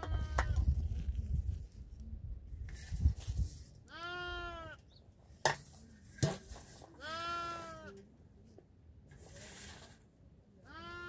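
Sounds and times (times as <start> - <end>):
goat or sheep bleating: 3.9 - 4.8, 7.0 - 8.0, 10.7 - 11.0.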